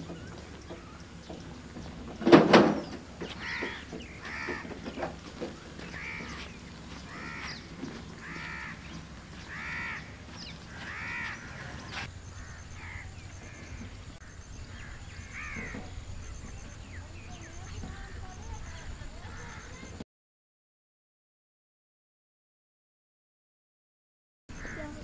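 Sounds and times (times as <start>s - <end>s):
crow cawing: 3.2s - 15.9s, 18.0s - 19.8s, 24.6s - 25.0s.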